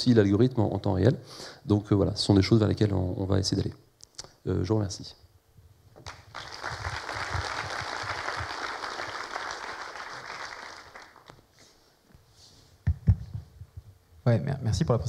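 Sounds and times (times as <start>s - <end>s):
audience applauding: 6.0s - 11.5s.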